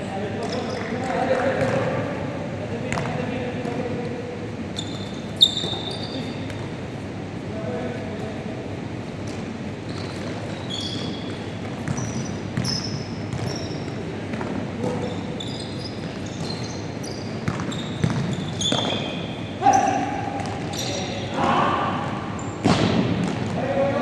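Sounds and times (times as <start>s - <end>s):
sneakers squeaking: 0.3s - 2.0s, 4.6s - 6.9s, 9.2s - 24.0s
basketball bouncing: 1.6s - 1.9s, 11.6s - 15.0s, 17.4s - 19.0s, 20.4s - 20.7s, 22.6s - 23.6s.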